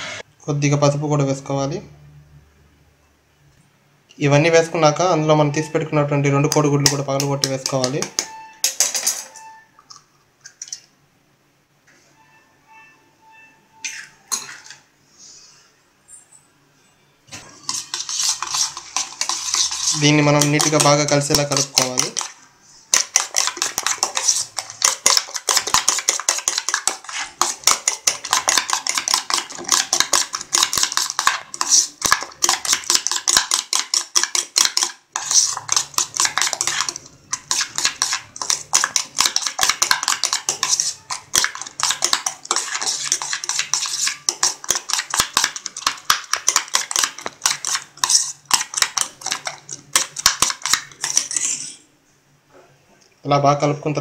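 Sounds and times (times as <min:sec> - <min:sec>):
spoon clinking against metal bowl: 0:06.5 - 0:09.9.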